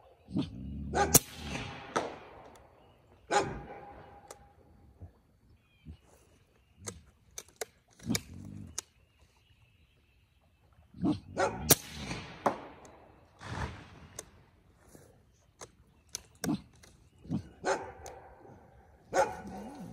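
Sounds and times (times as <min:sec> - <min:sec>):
dog barking and yelping: 0:00.4 - 0:01.2, 0:03.3 - 0:03.8, 0:11.0 - 0:11.7, 0:17.3 - 0:18.2, 0:19.1 - 0:19.9
sharp clicks: 0:06.8 - 0:09.1, 0:14.1 - 0:14.4, 0:15.5 - 0:17.4.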